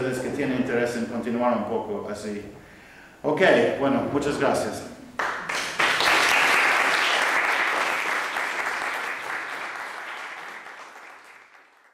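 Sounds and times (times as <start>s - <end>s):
audience applauding: 5.2s - 11.9s.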